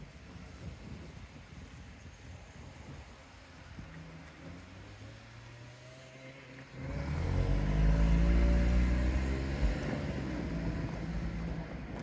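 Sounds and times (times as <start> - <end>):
vehicle engine passing by: 4.4 - 12.0.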